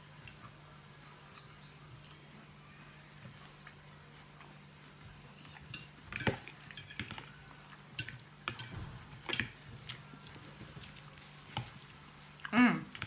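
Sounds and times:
cutlery clinking on a dish: 0:05.7 - 0:07.3, 0:08.0 - 0:09.5.

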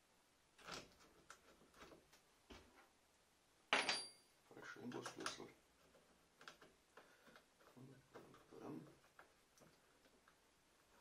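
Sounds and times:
metal tool clinking: 0:03.7 - 0:04.3.

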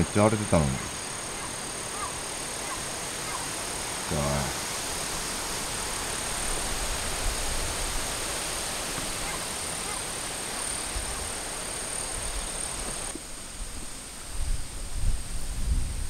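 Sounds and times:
gusty wind through trees: 0:00.0 - 0:16.0
wind buffeting microphone: 0:13.8 - 0:16.0.

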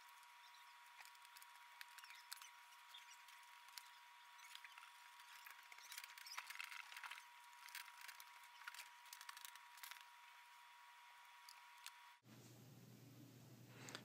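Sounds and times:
small screwdriver scratching and ticking: 0:00.1 - 0:10.1.

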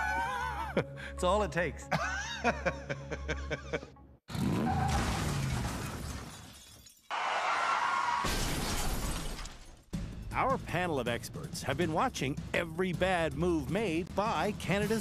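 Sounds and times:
music: 0:00.0 - 0:04.2, 0:09.9 - 0:15.0
crash and shattering glass: 0:04.4 - 0:07.1, 0:08.2 - 0:09.9.

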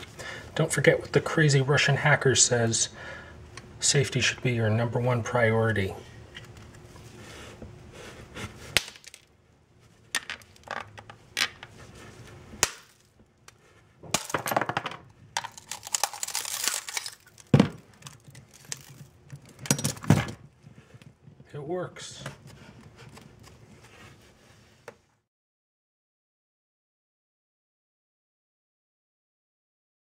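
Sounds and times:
glass bottle cracking and breaking: 0:08.8 - 0:09.3, 0:14.1 - 0:20.4.

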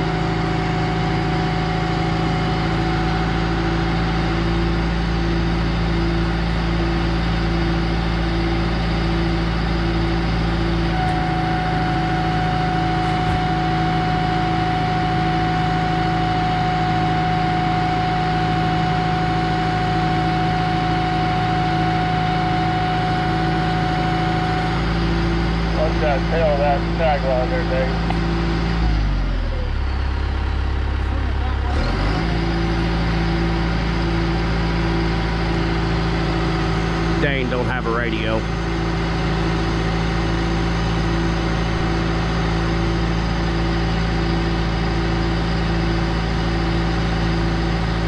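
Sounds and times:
diesel engine running: 0:00.0 - 0:48.0
high whine: 0:09.4 - 0:21.0, 0:35.5 - 0:43.4.

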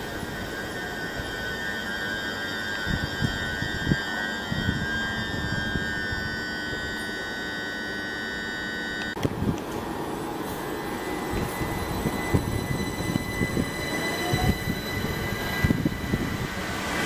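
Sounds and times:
electric train motor whine: 0:00.0 - 0:17.0
train wheels rumbling on rails: 0:09.2 - 0:17.0.

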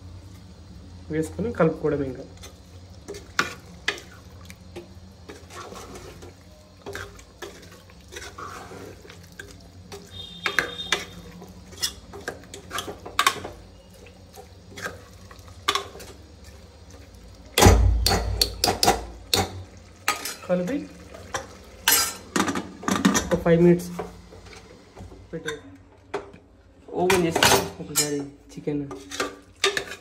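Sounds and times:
metal spoon stirring in a metal pot: 0:02.3 - 0:16.6, 0:18.0 - 0:23.3, 0:27.0 - 0:30.0.

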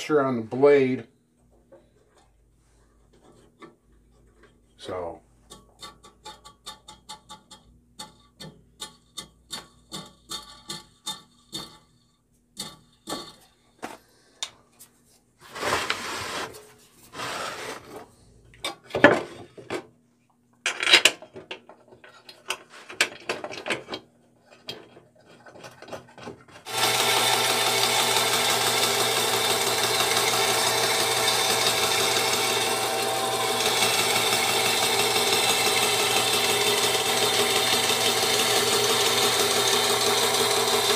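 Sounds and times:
bandsaw running: 0:15.4 - 0:18.0, 0:26.6 - 0:40.9
board fed into saw blade: 0:26.7 - 0:40.9.

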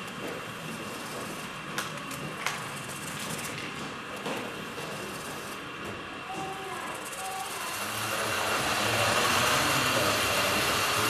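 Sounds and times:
model trains whirring: 0:00.0 - 0:11.0.

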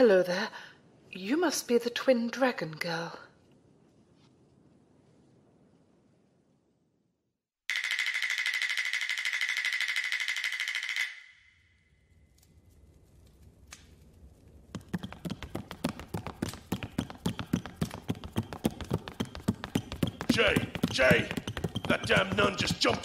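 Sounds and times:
running footsteps on hollow wooden floor: 0:14.6 - 0:23.0.

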